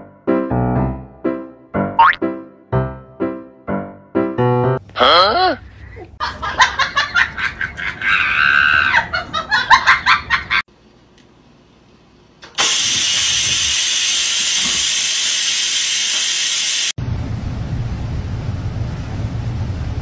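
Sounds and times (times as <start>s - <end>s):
rice cooker venting steam: 12.4s - 20.0s.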